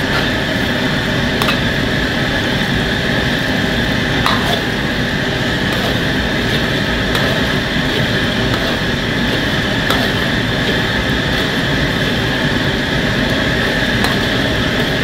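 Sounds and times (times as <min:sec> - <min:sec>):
gas burner rushing: 0:00.0 - 0:15.0
ladle knocking on wok: 0:04.2 - 0:04.7.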